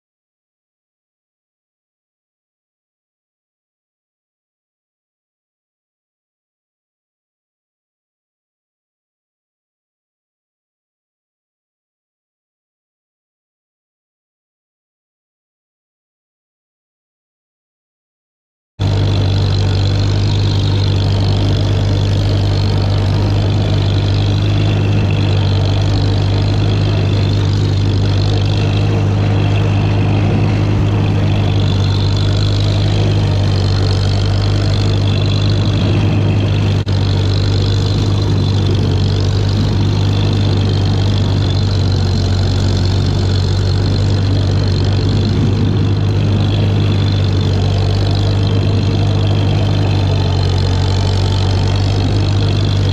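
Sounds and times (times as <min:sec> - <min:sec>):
tractor engine running: 0:18.8 - 0:52.9.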